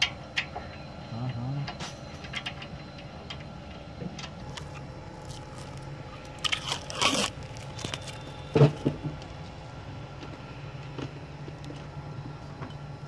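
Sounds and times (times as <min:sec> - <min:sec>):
steady low hum: 0:00.0 - 0:13.0
scraping rustle: 0:04.5 - 0:08.8.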